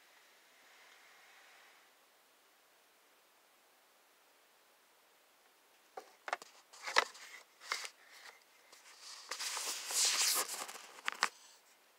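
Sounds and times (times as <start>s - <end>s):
rustling: 6.0s - 11.8s.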